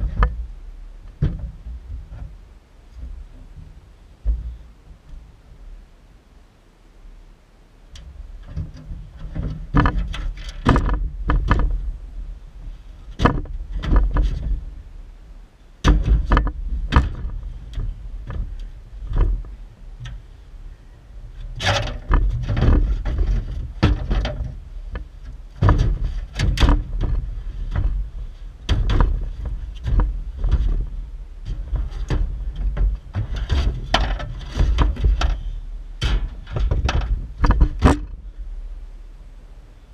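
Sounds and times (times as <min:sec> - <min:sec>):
low rumble: 0:00.0 - 0:39.9
knocks on sheet-metal truck bed: 0:09.3 - 0:11.8, 0:15.8 - 0:17.4, 0:21.7 - 0:24.5, 0:25.6 - 0:28.0, 0:28.7 - 0:30.8, 0:36.0 - 0:38.1.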